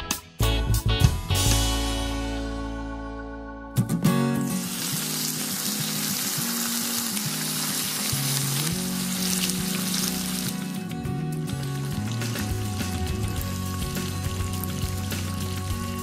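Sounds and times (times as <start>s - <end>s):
background music: 0.0s - 16.0s
sauce sizzling in frying pans: 4.4s - 16.0s.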